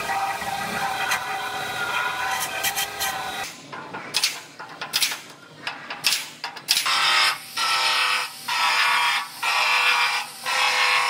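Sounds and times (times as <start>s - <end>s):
belt sander grinding metal: 0.0s - 3.5s.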